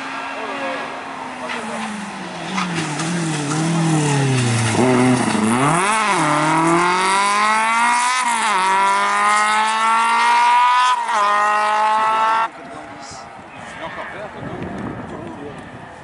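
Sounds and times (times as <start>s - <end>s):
rally car engine accelerating: 1.3s - 12.5s.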